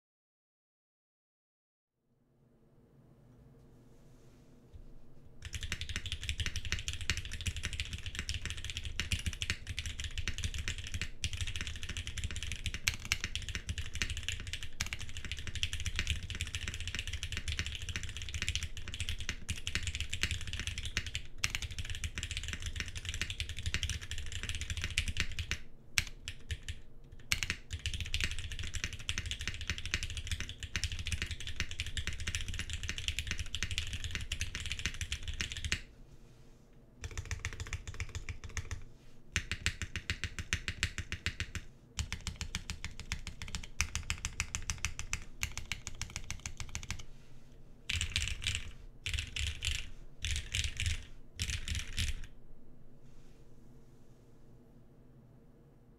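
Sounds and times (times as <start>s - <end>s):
rapid mechanical keyboard typing: 5.4s - 35.8s, 37.0s - 38.8s, 39.4s - 47.1s, 47.9s - 52.3s.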